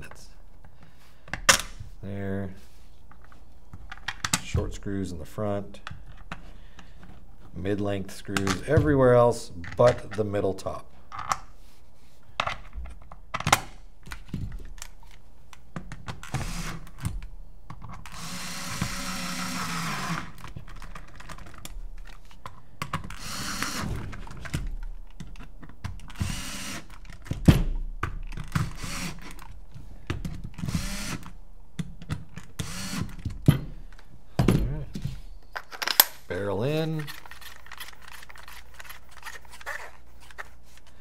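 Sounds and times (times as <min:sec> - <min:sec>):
power screwdriver whirring: 0:18.1 - 0:20.4, 0:23.1 - 0:23.9, 0:26.1 - 0:27.0, 0:28.6 - 0:29.4, 0:30.6 - 0:31.3, 0:32.6 - 0:33.2
tools clicking and tapping: 0:24.5 - 0:34.1.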